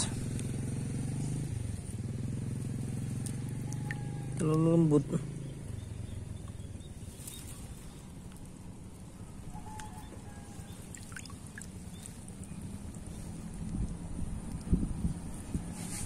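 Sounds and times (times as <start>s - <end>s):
faint bird call: 9.2s - 11.6s.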